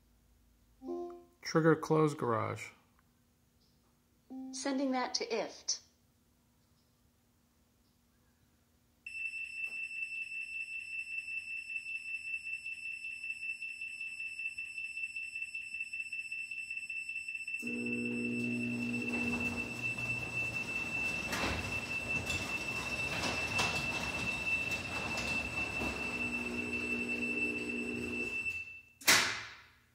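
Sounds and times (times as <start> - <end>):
rapid high warning beeps: 17.5 - 28.6
garage door motor humming: 17.6 - 28.6
garage door rattling down: 17.8 - 28.6.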